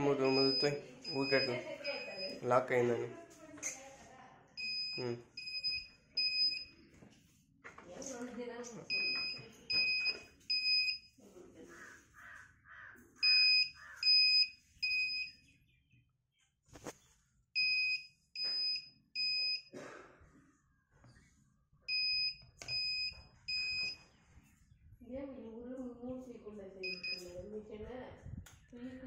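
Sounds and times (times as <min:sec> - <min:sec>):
short high warning beeps: 0:00.2 - 0:02.4, 0:26.9 - 0:27.2
person speaking: 0:05.0 - 0:05.3.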